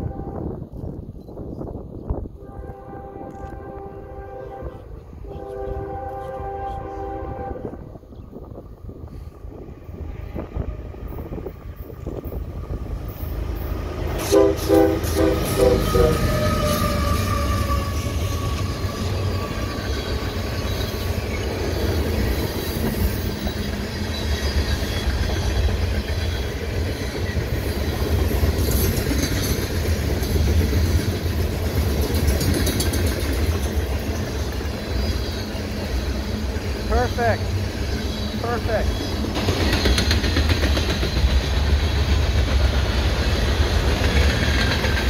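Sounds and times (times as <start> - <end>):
locomotive horn blasts: 0.0 - 0.6, 2.4 - 7.9, 14.2 - 18.9
train rumbling past: 0.0 - 45.0
wheels clacking over rails: 14.9 - 45.0.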